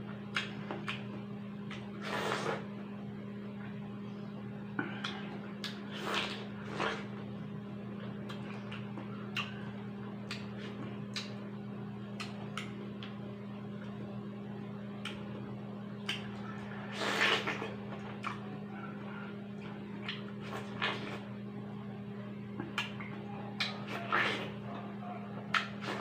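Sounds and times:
chewing clicks: 0.3s - 1.9s, 8.2s - 11.4s, 12.2s - 13.2s, 15.0s - 15.4s, 16.0s - 18.5s, 22.6s - 26.0s
juicy bites and mouth smacks: 0.3s - 2.4s.

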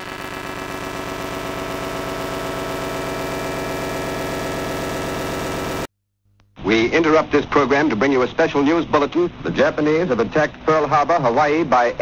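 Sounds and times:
electronic buzzing drone: 0.0s - 5.9s
static hiss: 0.0s - 5.9s.

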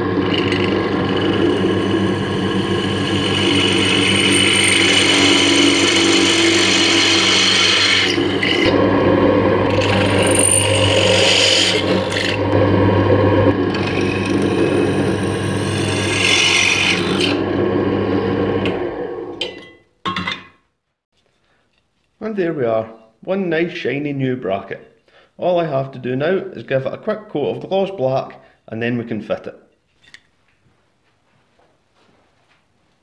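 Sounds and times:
motor running down: 0.0s - 19.4s
drill press running: 0.0s - 19.5s
bit scraping through metal: 0.2s - 8.8s.

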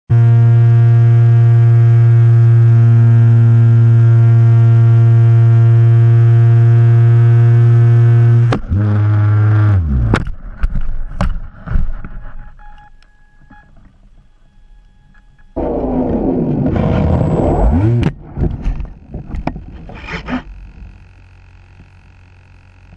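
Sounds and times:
model airplane motor droning: 0.1s - 10.3s, 13.7s - 22.9s.

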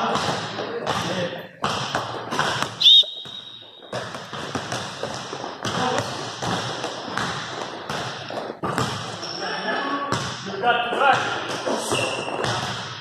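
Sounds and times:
basketball bouncing: 0.0s - 9.4s, 10.1s - 10.4s, 11.0s - 13.0s
shoe squeal on gym floor: 2.7s - 4.1s, 9.1s - 9.8s, 11.7s - 12.6s.

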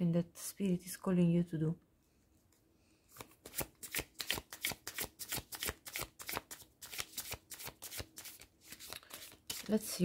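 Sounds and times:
cards being shuffled: 3.1s - 10.0s.

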